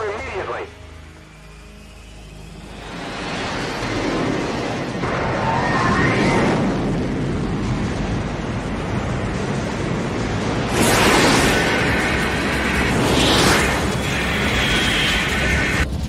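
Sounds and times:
jet engines roaring: 0.0s - 16.0s.

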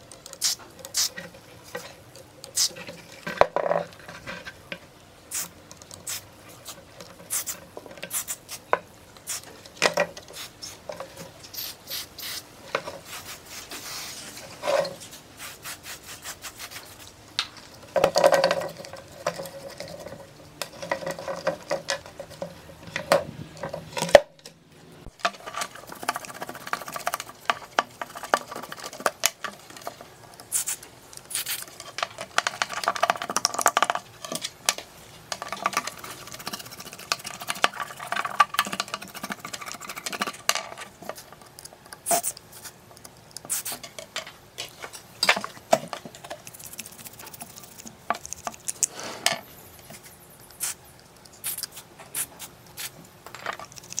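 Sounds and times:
paintbrush scrubbing circuit board: 5.3s - 8.7s, 11.5s - 17.1s
aerosol spray bursts: 11.6s - 12.4s.

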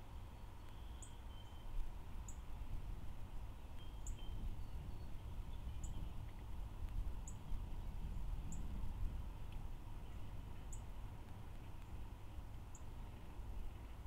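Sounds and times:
low steady rumble: 0.0s - 14.0s
small bird chirping: 0.4s - 2.5s, 3.6s - 6.3s.

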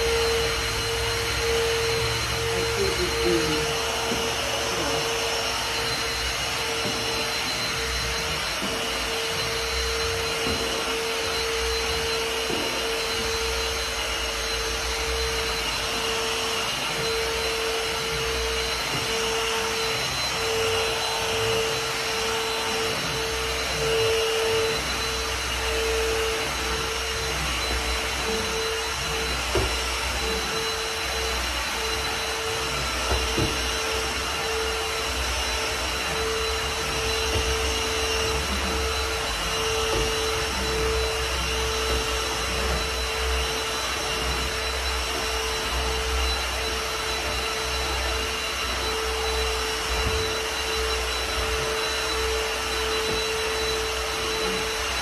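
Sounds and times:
vacuum cleaner running: 0.0s - 55.0s.

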